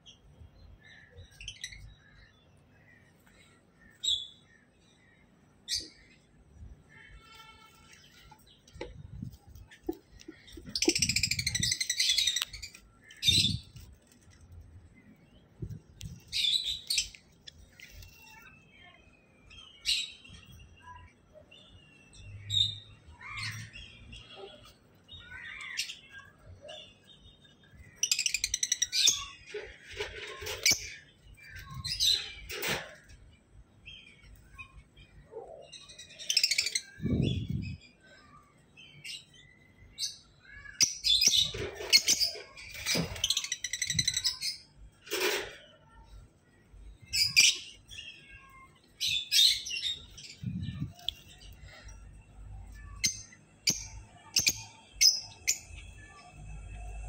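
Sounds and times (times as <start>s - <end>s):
lovebirds chirping shrilly: 6.9s - 13.9s.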